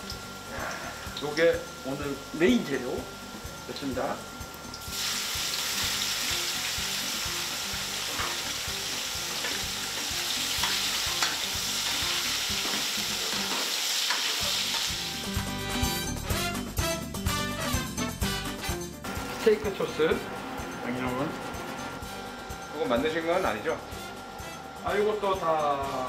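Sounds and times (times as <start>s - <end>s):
meat sizzling in a wok: 4.4s - 16.0s.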